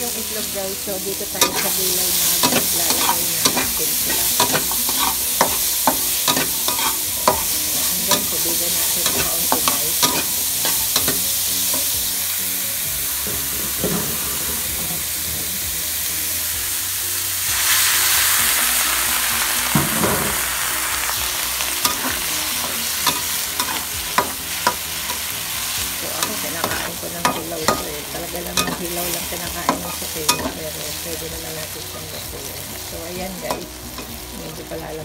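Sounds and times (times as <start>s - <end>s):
zucchini sizzling in wok: 0.0s - 35.0s
metal spatula scraping pan: 1.4s - 12.0s, 21.8s - 25.3s, 26.0s - 30.8s
liquid hissing in hot pan: 17.2s - 31.2s.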